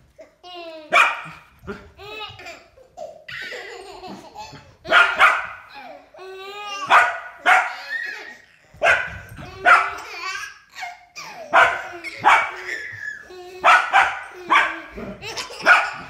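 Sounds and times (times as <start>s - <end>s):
dog barking: 0.9s - 1.4s, 4.9s - 5.6s, 6.9s - 7.8s, 8.8s - 10.0s, 11.5s - 12.6s, 13.6s - 14.9s, 15.6s - 16.0s.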